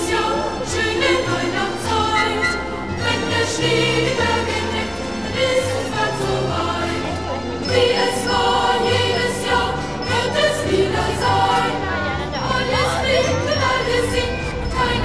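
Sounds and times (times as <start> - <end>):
choir singing: 0.0 - 15.0.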